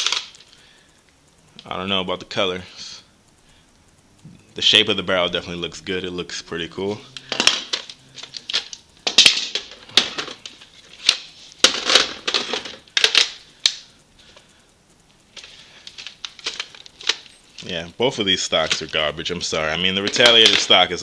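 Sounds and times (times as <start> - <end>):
plastic toy parts clicking and rattling: 0.0 - 0.5, 7.2 - 13.8, 15.3 - 17.8, 18.4 - 19.1, 19.8 - 21.0.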